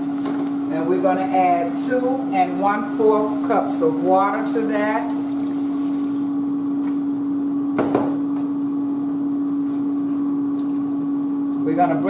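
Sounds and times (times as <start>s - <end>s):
steady hum: 0.0s - 12.0s
water pouring into saucepan: 4.7s - 6.6s.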